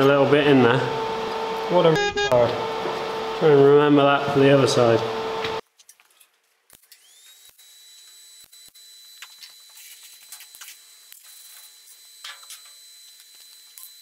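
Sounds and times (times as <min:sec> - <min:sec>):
high-pitched whine: 0:00.0 - 0:05.6, 0:07.0 - 0:14.0
welding clicks and crackles: 0:05.6 - 0:14.0.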